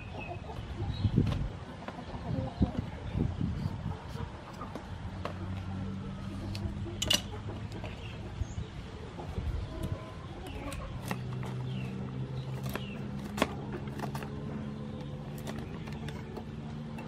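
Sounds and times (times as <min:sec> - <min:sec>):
faint birds chirping: 0:00.0 - 0:17.0.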